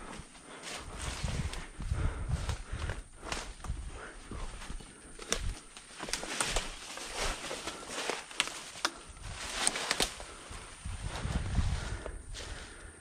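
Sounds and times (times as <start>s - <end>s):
footsteps crunching through dry leaves: 2.4s - 12.7s
twigs snapping: 4.4s - 10.6s.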